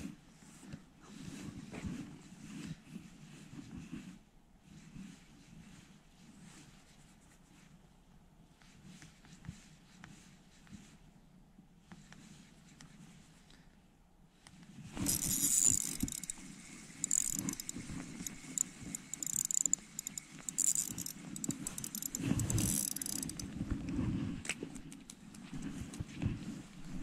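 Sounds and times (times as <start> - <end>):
rattling jangling handling noise: 15.0 - 16.4, 17.0 - 23.5.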